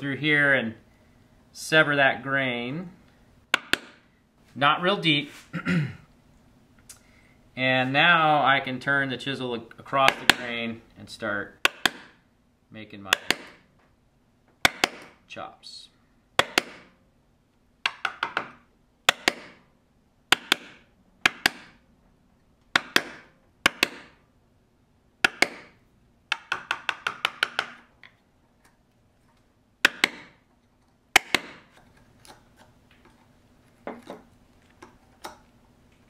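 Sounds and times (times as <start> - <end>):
mallet striking chisel: 3.5 - 4.0, 10.0 - 10.5, 11.6 - 12.2, 13.1 - 13.6, 14.6 - 15.2, 16.4 - 17.0, 17.9 - 19.7, 20.3 - 21.8, 22.7 - 24.2, 25.2 - 27.9, 29.8 - 30.5, 31.1 - 31.8.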